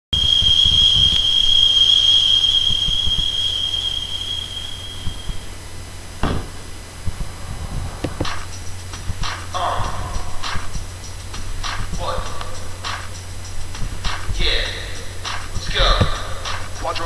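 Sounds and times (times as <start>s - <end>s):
low hum: 0.2s - 17.0s
short knocks: 15.7s - 16.6s.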